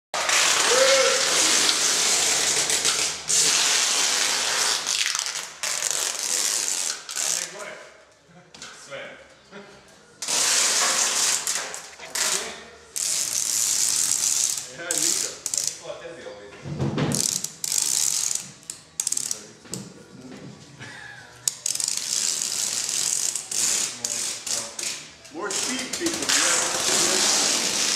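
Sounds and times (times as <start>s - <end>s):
adhesive tape pulled off roll: 0.2s - 7.6s, 10.2s - 15.8s, 17.1s - 19.4s, 21.5s - 27.9s.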